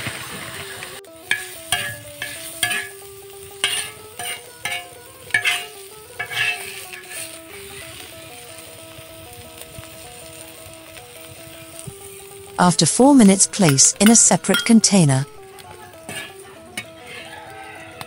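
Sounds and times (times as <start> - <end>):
light sizzle of frying: 0.0 - 18.0
spatula scraping metal pan: 1.3 - 8.1, 15.9 - 17.3.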